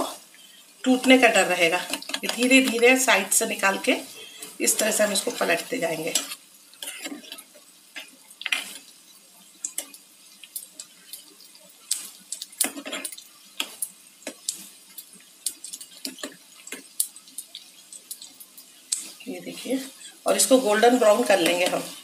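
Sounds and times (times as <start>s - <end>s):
oil sizzling: 0.0s - 22.0s
metal spoon scraping a frying pan: 1.8s - 2.9s, 4.7s - 8.9s, 11.9s - 14.4s.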